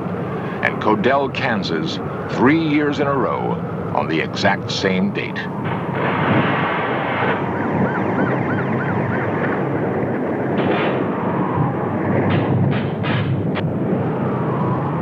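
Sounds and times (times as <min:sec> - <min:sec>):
tornado wind roar: 0:00.0 - 0:15.0
siren-like warbling tone: 0:05.7 - 0:12.3.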